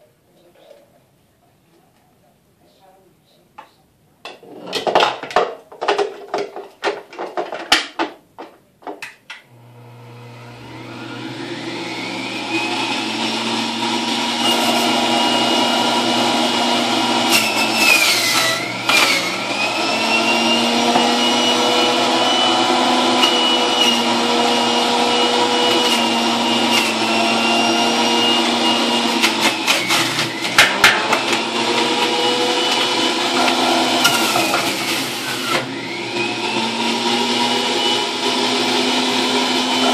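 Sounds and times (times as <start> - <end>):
juicer motor whining: 9.5 - 39.9
juicer parts clattering: 17.2 - 35.9.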